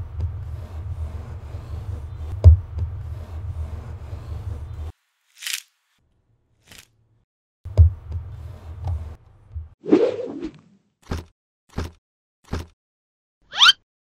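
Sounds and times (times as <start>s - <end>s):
rolling pin rolling over dough: 0.0s - 4.9s.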